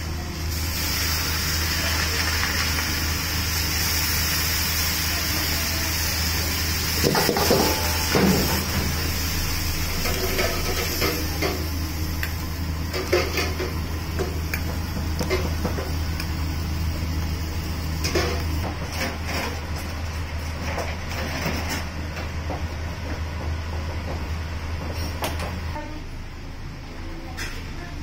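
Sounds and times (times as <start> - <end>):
broth fizzing in wok: 0.0 - 18.6
gas burner roaring: 0.0 - 27.1.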